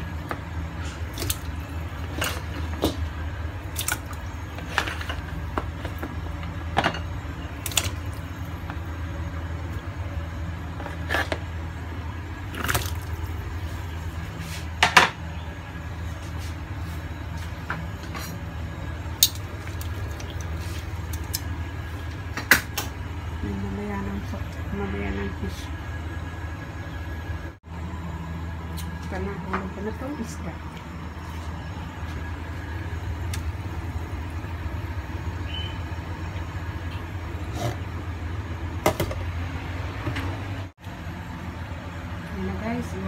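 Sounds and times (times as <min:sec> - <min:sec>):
steady low hum: 0:00.0 - 0:43.0
vegetables splashing into water: 0:12.5 - 0:13.3.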